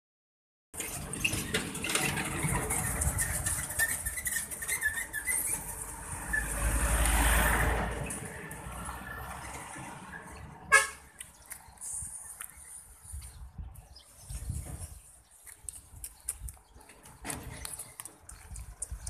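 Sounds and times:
vehicle passing: 0:05.6 - 0:11.9
birds chirping: 0:10.0 - 0:19.0.

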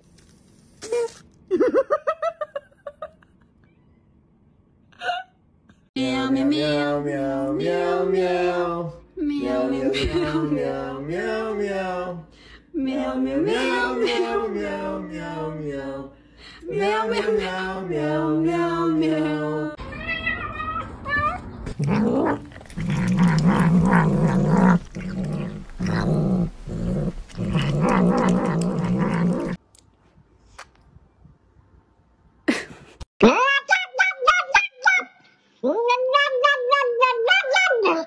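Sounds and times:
cats meowing: 0:19.8 - 0:24.8
cats growling: 0:21.7 - 0:29.6.

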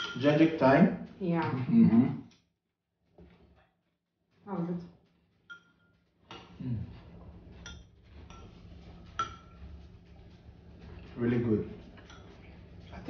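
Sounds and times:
spoons clinking on ceramic bowls: 0:00.0 - 0:00.4, 0:05.5 - 0:06.6, 0:07.6 - 0:09.6, 0:12.0 - 0:13.0.

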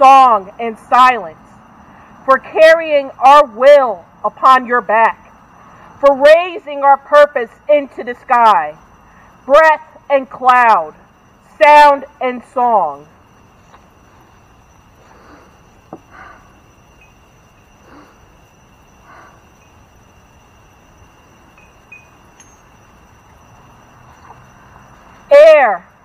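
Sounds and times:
wind chimes tinkling: 0:13.2 - 0:25.3.

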